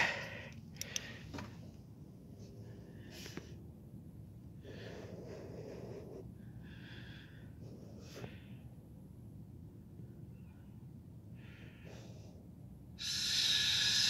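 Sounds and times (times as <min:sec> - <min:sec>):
breathing close to microphone: 0:00.0 - 0:01.6, 0:02.4 - 0:03.6, 0:04.6 - 0:08.8
faint low hum: 0:00.0 - 0:14.0.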